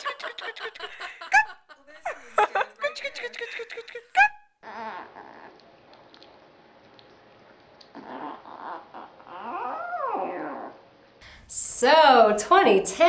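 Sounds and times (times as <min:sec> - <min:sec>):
puppy whining and grumbling: 0:04.6 - 0:05.8, 0:07.8 - 0:11.0.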